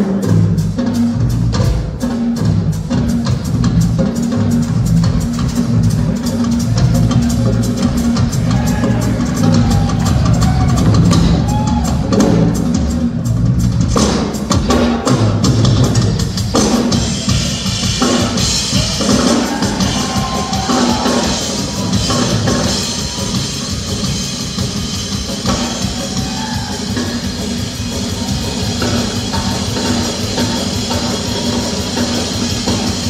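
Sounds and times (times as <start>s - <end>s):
drum kit beat: 0.0s - 33.0s
live band music: 0.0s - 33.0s.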